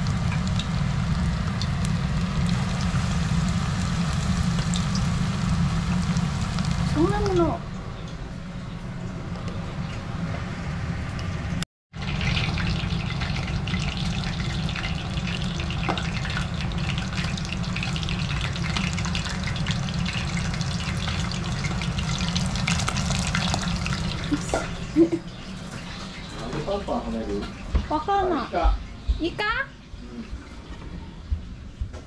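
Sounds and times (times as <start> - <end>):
fritters sizzling in hot oil: 0.0 - 7.6, 11.9 - 26.0.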